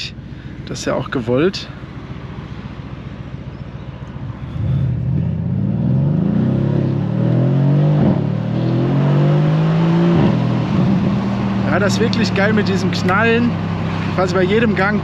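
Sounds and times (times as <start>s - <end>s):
car engine accelerating: 1.3s - 15.0s
exhaust crack at upshift: 3.8s - 15.0s.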